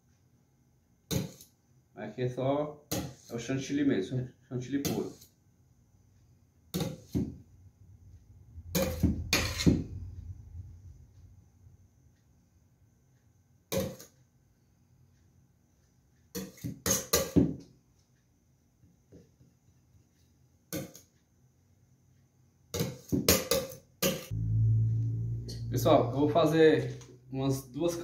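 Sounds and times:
metal spatula scraping metal: 0:08.7 - 0:09.9.

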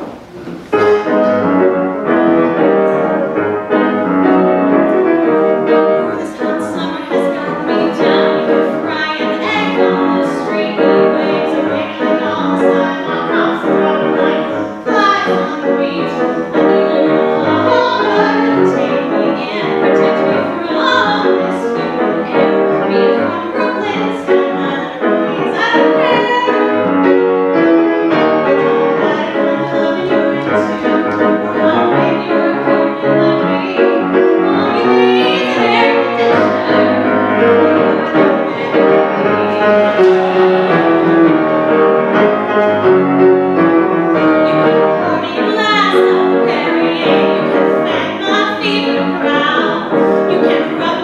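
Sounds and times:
grand piano playing: 0:00.0 - 0:51.0
woman singing: 0:06.0 - 0:26.7, 0:28.5 - 0:40.3, 0:44.4 - 0:51.0.

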